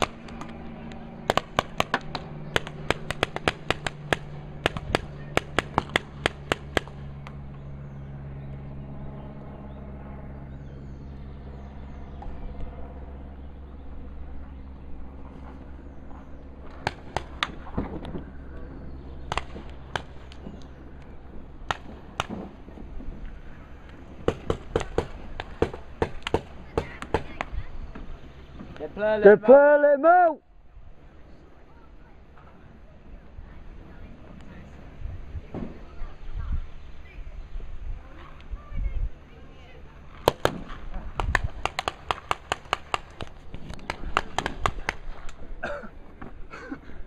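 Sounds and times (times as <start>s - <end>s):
paintball markers firing: 0.0s - 7.4s, 16.7s - 18.2s, 19.2s - 22.6s, 24.2s - 27.6s, 40.2s - 45.4s.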